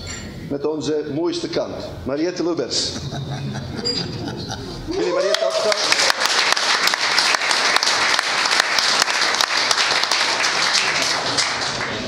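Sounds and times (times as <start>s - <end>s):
group applauding: 4.6s - 12.0s.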